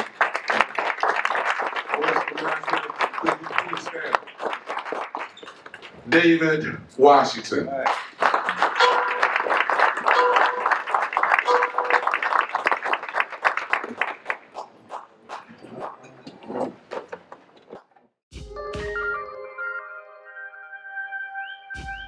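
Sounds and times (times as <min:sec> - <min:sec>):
audience applauding: 0:00.0 - 0:06.0, 0:07.8 - 0:17.0.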